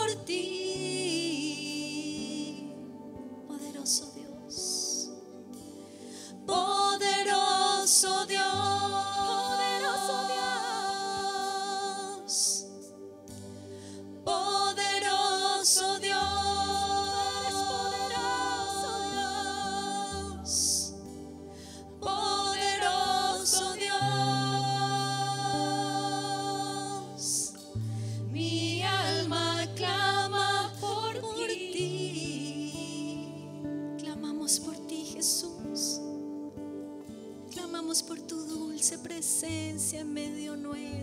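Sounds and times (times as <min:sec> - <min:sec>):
woman singing lead: 0:00.0 - 0:05.3, 0:06.4 - 0:12.9, 0:14.2 - 0:21.2, 0:21.8 - 0:36.2, 0:37.5 - 0:41.0
acoustic guitar: 0:00.0 - 0:41.0
backing singers: 0:22.0 - 0:27.5.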